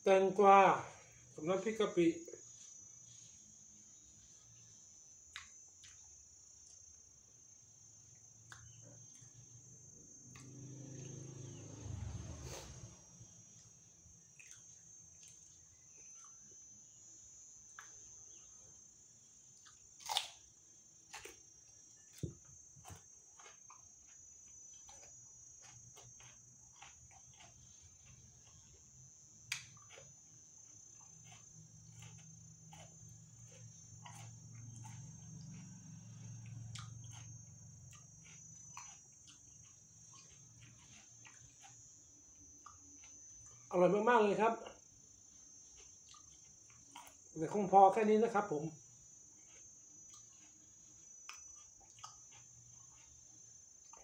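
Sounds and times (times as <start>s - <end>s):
crickets trilling: 0.0s - 54.0s
biting and chewing cucumber: 19.4s - 54.0s.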